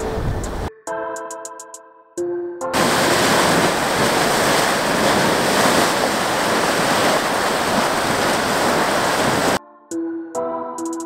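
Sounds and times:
hydrothermal vent rushing: 0:02.8 - 0:09.6.

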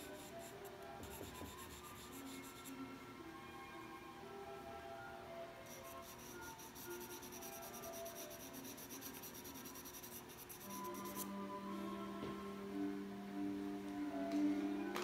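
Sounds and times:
brush scratching on paper: 0:00.0 - 0:02.7, 0:05.7 - 0:11.3
soft background music: 0:00.0 - 0:15.0.

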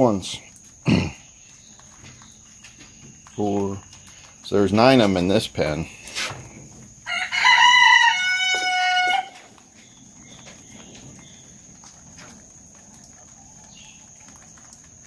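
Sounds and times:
rooster crowing: 0:07.0 - 0:09.5.

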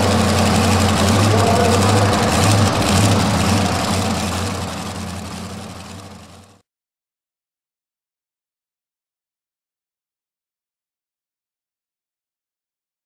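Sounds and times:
truck engine idling: 0:00.0 - 0:06.6.

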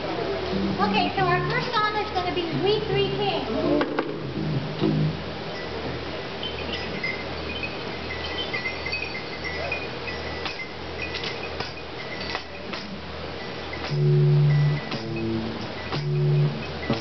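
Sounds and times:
steady low hum: 0:00.0 - 0:17.0
light clinks: 0:06.4 - 0:17.0.

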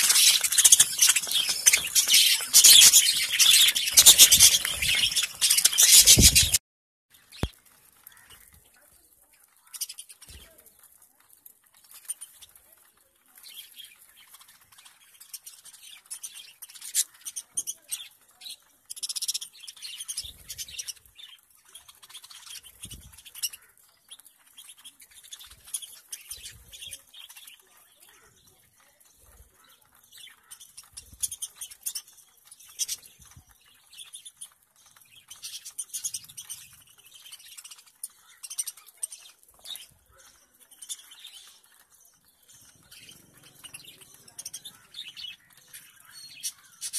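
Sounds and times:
birds pecking at metal tray: 0:00.0 - 0:06.6, 0:07.2 - 0:46.9
budgerigars chirping and squawking: 0:00.0 - 0:06.6, 0:13.6 - 0:46.9.

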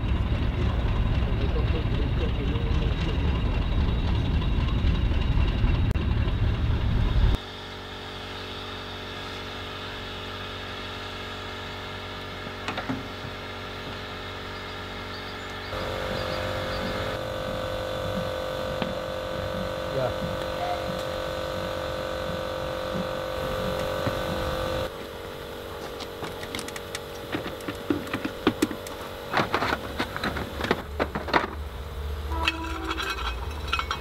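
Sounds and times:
train rumble: 0:00.0 - 0:07.4, 0:15.7 - 0:25.0
machine hum with held tones: 0:00.0 - 0:34.0
higher tone: 0:15.7 - 0:24.9.

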